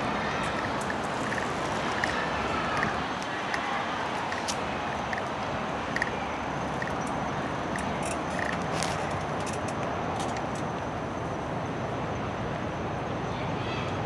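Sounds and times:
steady hiss and rumble: 0:00.0 - 0:14.0
scattered clicks: 0:00.4 - 0:10.9.

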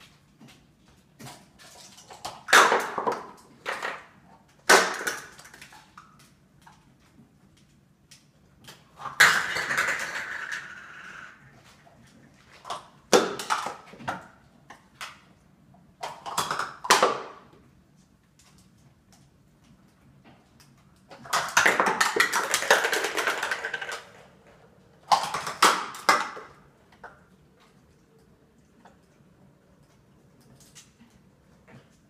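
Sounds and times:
plastic cups clattering: 0:01.3 - 0:06.0, 0:08.8 - 0:11.5, 0:12.3 - 0:14.4, 0:16.0 - 0:17.5, 0:21.1 - 0:27.4.

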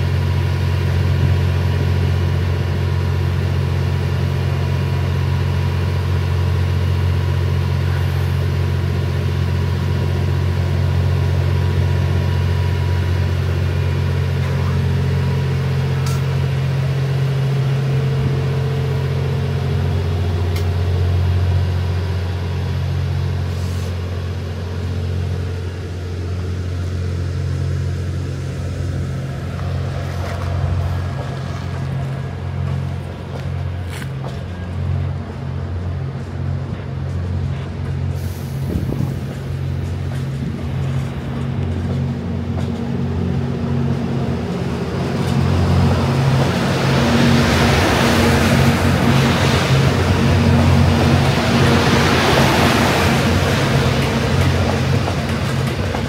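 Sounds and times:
diesel train engines humming: 0:00.0 - 0:56.0
light clicks of rolling cars: 0:15.9 - 0:16.6, 0:20.5 - 0:20.9, 0:29.5 - 0:43.1, 0:51.1 - 0:56.0.

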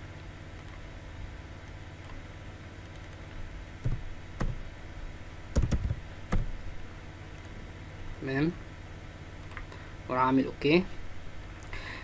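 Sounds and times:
steady low hum: 0:00.0 - 0:12.0
computer keyboard keystrokes: 0:02.8 - 0:03.2, 0:03.8 - 0:04.6, 0:05.5 - 0:06.5.

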